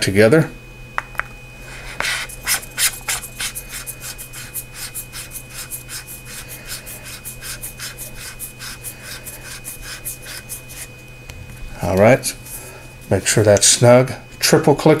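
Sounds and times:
screw threads rasping: 0:02.0 - 0:10.9.

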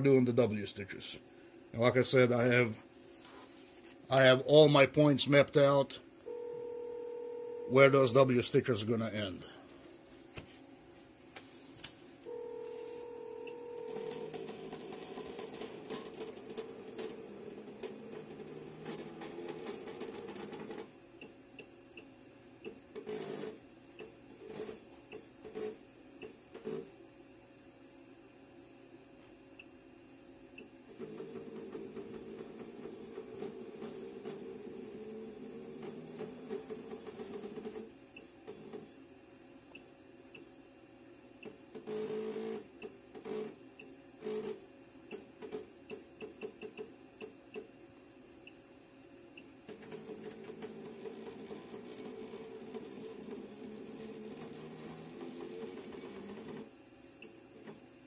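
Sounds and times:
steady hum: 0:00.0 - 0:41.7
machine motors buzzing: 0:12.3 - 0:20.9, 0:30.9 - 0:37.9, 0:49.7 - 0:56.7.

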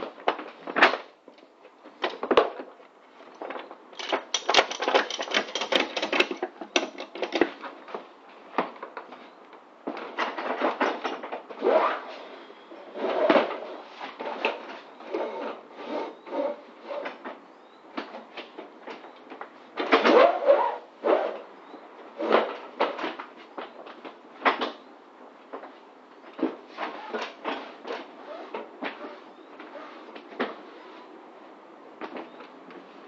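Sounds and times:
metal buckles clicking and clattering: 0:03.3 - 0:07.8.

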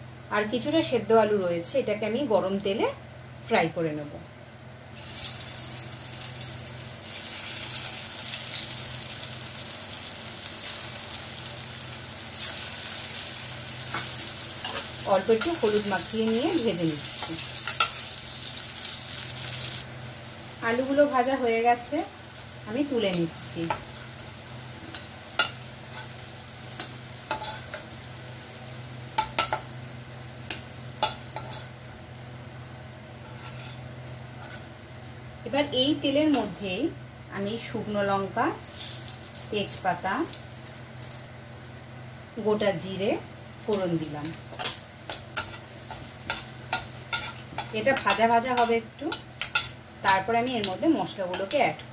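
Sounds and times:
potatoes sizzling in hot oil: 0:04.9 - 0:32.6, 0:38.5 - 0:41.3, 0:43.6 - 0:51.9.

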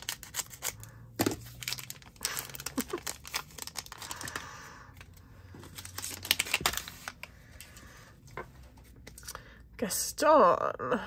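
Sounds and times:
foil pack rustling and crinkling: 0:00.0 - 0:07.8.

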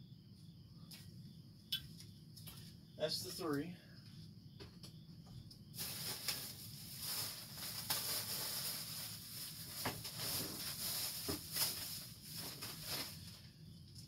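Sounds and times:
plastic wrap rustling: 0:05.8 - 0:13.5.

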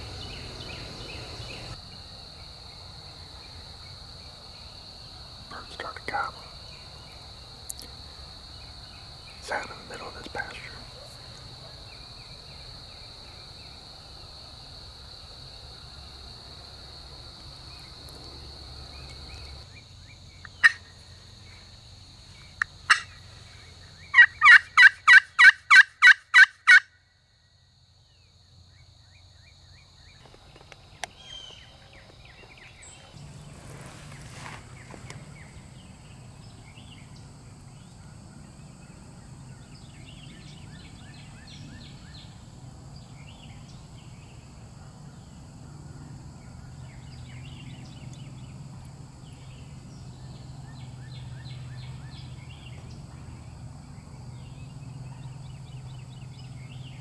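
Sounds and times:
high insect drone: 0:00.0 - 0:57.0
turkey yelps: 0:24.2 - 0:26.8.

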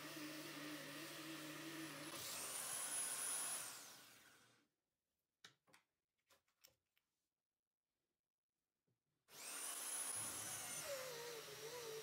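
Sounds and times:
drill press whining: 0:09.4 - 0:12.0.

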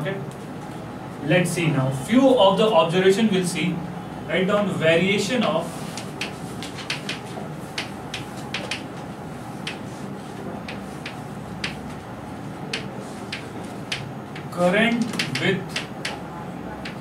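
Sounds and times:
chalk tapping and scraping on blackboard: 0:05.4 - 0:08.9, 0:09.5 - 0:12.0, 0:12.7 - 0:16.2.

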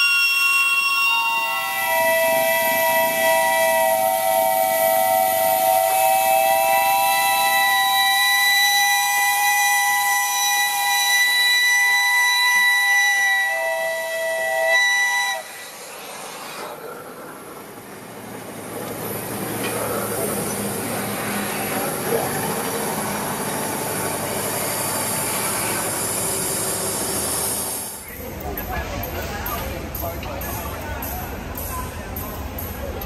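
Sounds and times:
steam locomotive whistle: 0:00.0 - 0:16.9, 0:20.5 - 0:28.0
escaping steam hiss: 0:00.0 - 0:28.2
rail and running-gear noise: 0:00.0 - 0:33.0.

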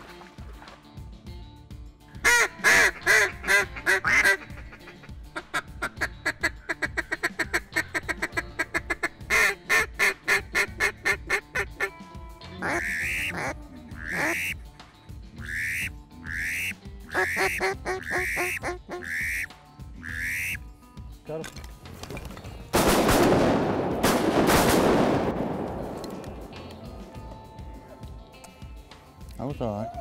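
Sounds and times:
duck call quacks: 0:02.2 - 0:12.0, 0:12.6 - 0:14.6, 0:15.4 - 0:20.6
duck call feeding chuckle: 0:02.3 - 0:11.7, 0:12.6 - 0:14.6, 0:15.4 - 0:20.6.

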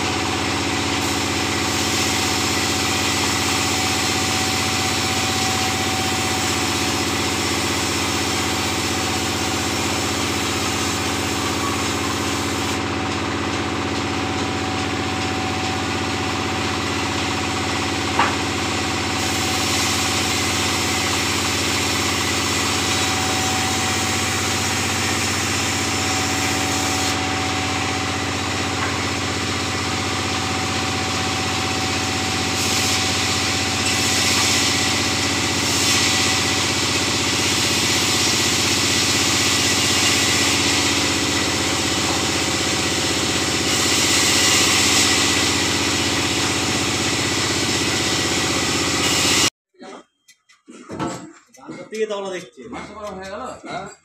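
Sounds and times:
band saw humming: 0:00.0 - 0:49.5
saw blade cutting wood: 0:17.7 - 0:49.5.

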